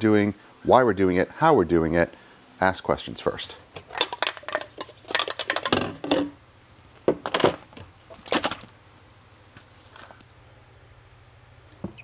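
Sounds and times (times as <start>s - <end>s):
plastic bottles clicking and knocking: 3.8s - 6.4s, 7.1s - 8.7s.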